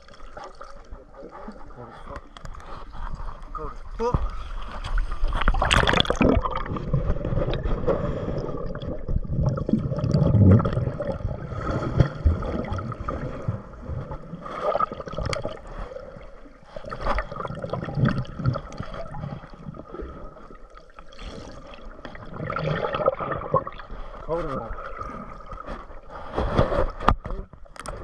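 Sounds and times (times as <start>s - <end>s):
underwater sloshing and gurgling: 0.0s - 28.0s
splash: 4.8s - 15.8s.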